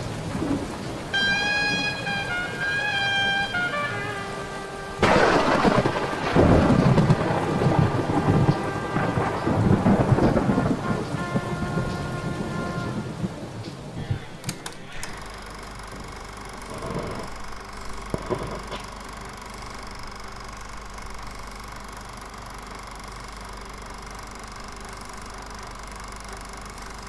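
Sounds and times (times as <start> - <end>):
heavy rain: 0.0 - 23.3
steady hum: 0.0 - 27.0
thunder: 5.0 - 14.3.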